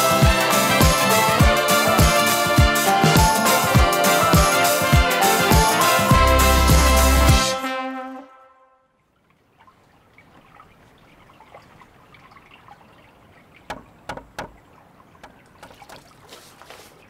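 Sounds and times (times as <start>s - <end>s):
water splashes: 9.0s - 17.0s
water trickling and sloshing: 9.0s - 17.0s.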